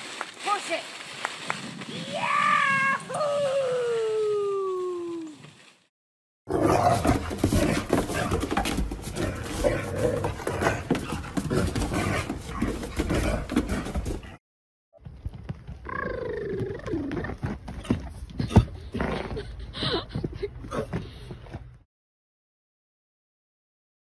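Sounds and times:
rustling: 0.0s - 3.1s.

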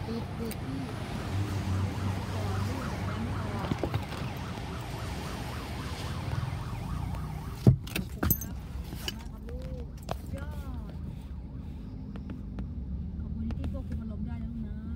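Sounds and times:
ambulance siren warbling chirps: 1.2s - 7.7s.

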